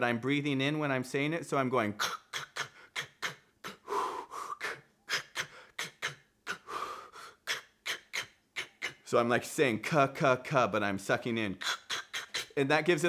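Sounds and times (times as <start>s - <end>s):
man making inhaled clicks: 2.0s - 9.1s, 11.6s - 12.6s
man drawing in breath: 3.7s - 5.8s, 6.5s - 7.5s.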